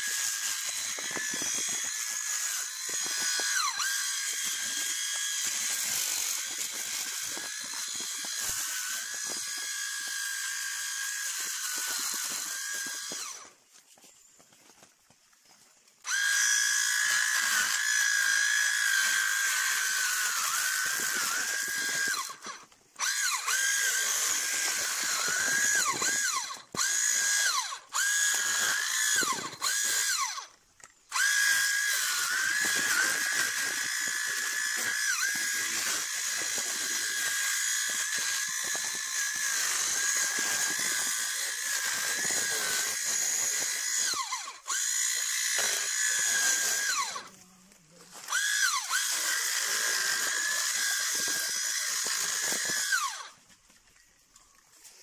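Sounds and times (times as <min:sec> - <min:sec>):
small electric motor whining: 0:00.0 - 0:14.2, 0:15.4 - 0:55.0.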